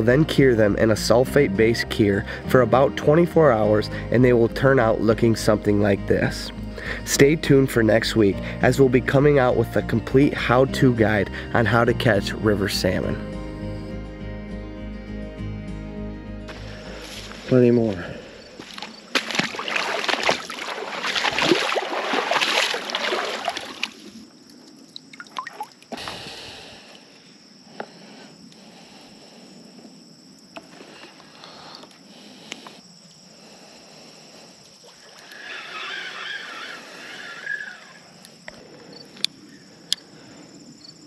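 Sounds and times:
wading through shallow water: 16.5 - 26.9, 30.6 - 39.8.

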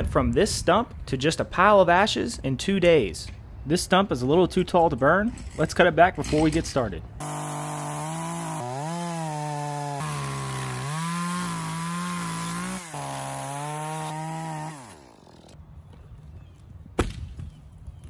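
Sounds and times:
chainsaw cutting stump: 7.2 - 15.6.

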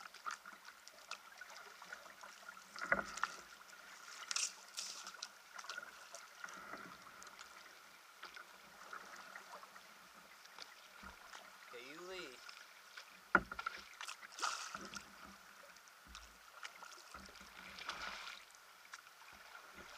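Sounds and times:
paddle dipping and water splashing: 0.0 - 19.9
thump: 13.3 - 13.6.

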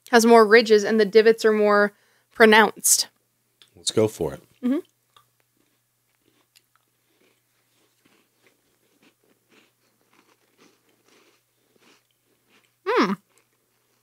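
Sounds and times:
chewing crisp cookies: 4.8 - 14.0.

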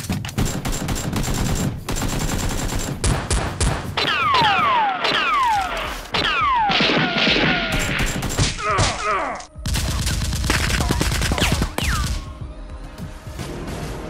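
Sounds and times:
gunshots: 0.0 - 12.3
automatic gunfire: 0.4 - 8.6.

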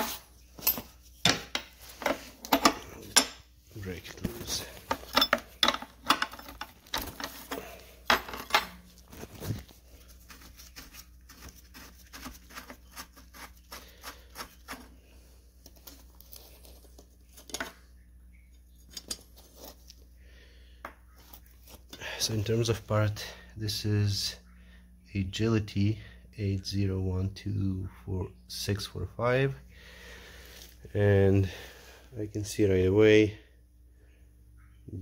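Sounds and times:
wrench clinking on metal: 4.9 - 8.8.

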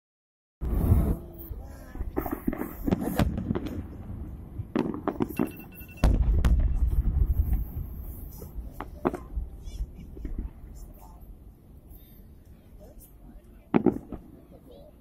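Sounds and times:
fireworks bangs and crackles: 0.6 - 11.0, 13.7 - 14.5.

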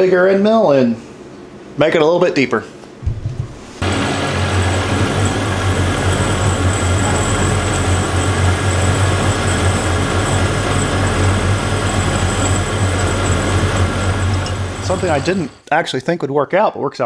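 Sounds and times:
coolant mist hissing: 3.8 - 15.5
milling machine cutting metal: 3.8 - 15.6
faint high whine: 3.8 - 15.7.

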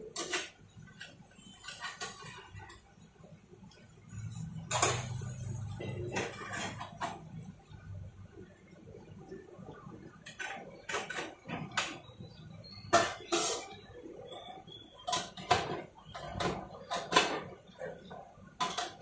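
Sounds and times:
metal plates clinking: 4.3 - 7.5, 12.8 - 19.0.

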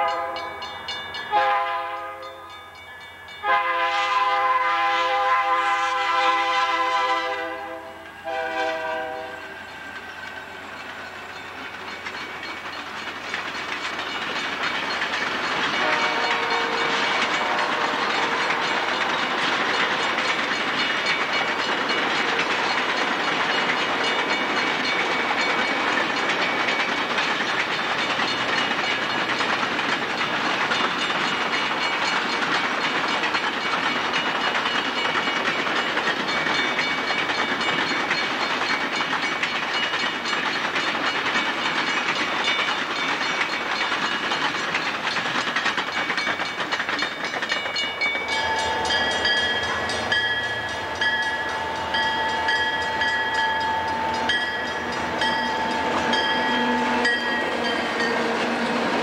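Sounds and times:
train horn chord: 0.0 - 0.7, 1.3 - 2.5, 3.4 - 9.6, 15.8 - 18.6
train coaches rumbling on rails: 0.0 - 59.0.

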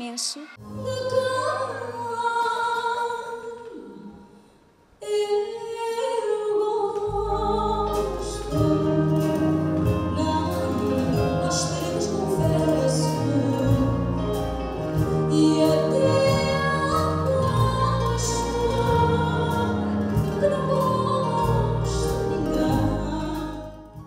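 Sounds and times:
woman singing into microphone: 0.0 - 4.3, 5.0 - 24.0
acoustic band playing: 6.8 - 24.0.

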